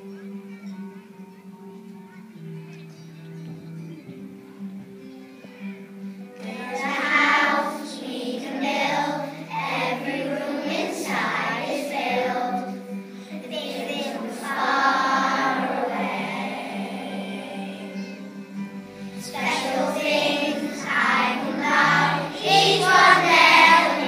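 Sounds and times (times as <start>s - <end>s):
music accompaniment: 0.0s - 24.0s
children singing in unison: 6.4s - 24.0s.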